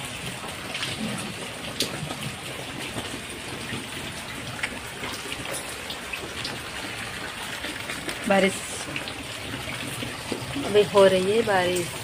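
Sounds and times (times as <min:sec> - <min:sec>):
rain falling: 0:00.0 - 0:12.0
ticks of raindrops: 0:00.0 - 0:12.0.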